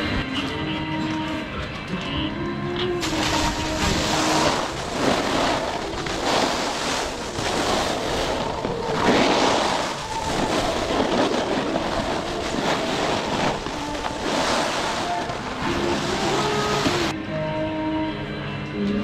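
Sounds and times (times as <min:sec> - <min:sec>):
snowboard scraping over snow: 0:03.0 - 0:17.1
wind on microphone: 0:03.1 - 0:17.1.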